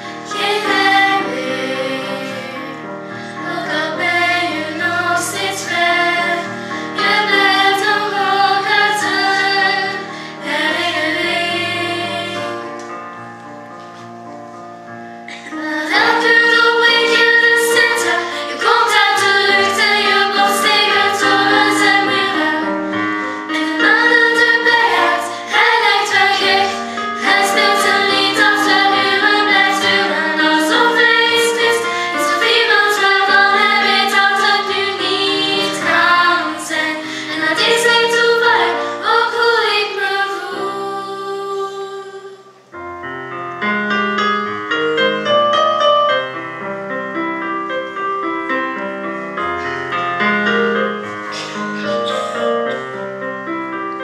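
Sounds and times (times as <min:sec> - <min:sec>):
instrumental accompaniment: 0:00.0 - 0:54.0
solo piano: 0:00.0 - 0:54.0
young female voices singing: 0:00.1 - 0:12.8, 0:15.3 - 0:42.7.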